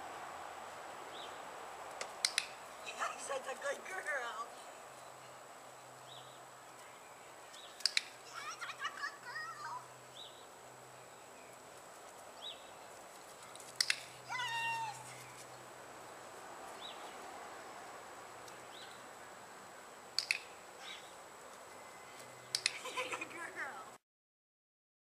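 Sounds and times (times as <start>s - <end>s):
clicker double clicks: 2.0s - 2.5s, 20.2s - 20.5s.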